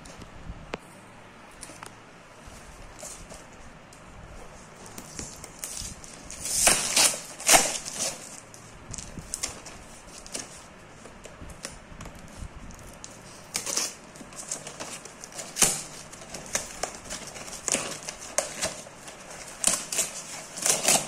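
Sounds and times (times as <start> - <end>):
packing tape ripping: 4.9 - 10.6, 13.0 - 21.0
cardboard tearing and ripping: 4.9 - 10.7, 13.0 - 21.0.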